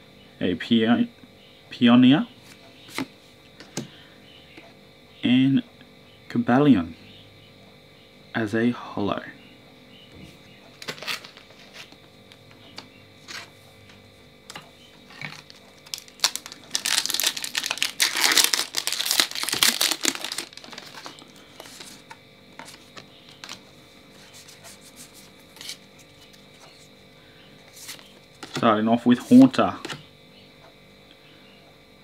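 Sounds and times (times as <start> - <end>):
foil wrapper crinkling and tearing: 10.8 - 11.5, 15.1 - 22.1
cards being handled: 10.8 - 12.0, 15.1 - 26.9, 27.7 - 29.5.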